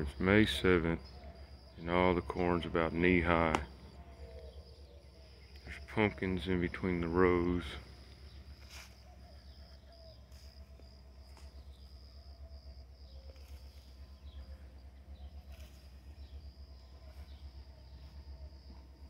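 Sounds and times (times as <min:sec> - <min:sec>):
distant bird chirps: 0:00.0 - 0:19.0
insect drone: 0:00.0 - 0:19.0
low pulsing rumble: 0:00.0 - 0:19.0.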